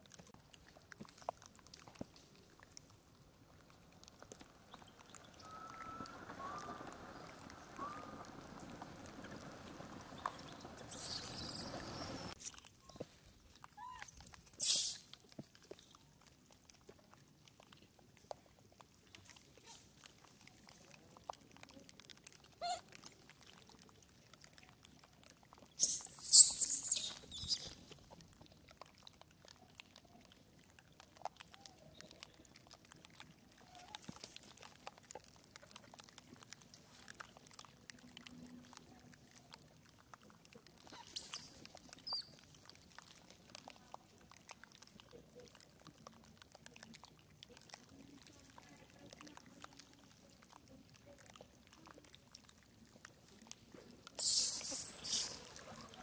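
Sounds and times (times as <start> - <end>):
faint clicks: 0.0 - 56.0
baby monkey squealing: 10.9 - 11.9, 14.6 - 15.0, 25.8 - 27.7, 41.0 - 41.5, 54.2 - 55.4.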